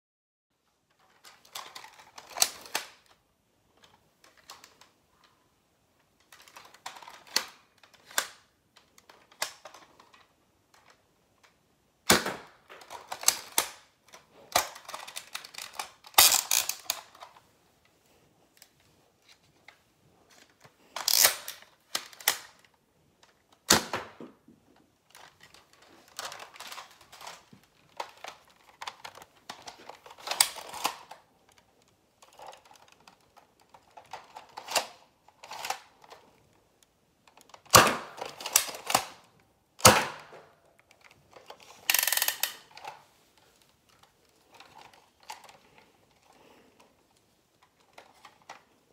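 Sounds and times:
toy blaster pump clacking: 14.7s - 17.2s, 21.0s - 22.5s, 41.8s - 42.6s.

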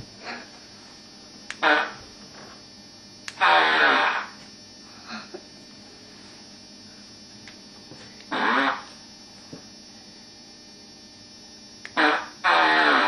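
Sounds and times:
steady background hum: 0.0s - 13.0s
cat farting: 1.6s - 2.0s, 3.4s - 4.4s, 8.3s - 8.9s, 12.0s - 13.0s.

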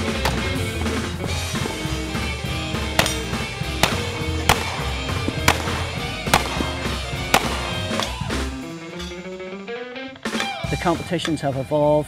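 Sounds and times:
revolver shots: 0.0s - 9.0s
background music with steady beat: 0.0s - 12.0s.

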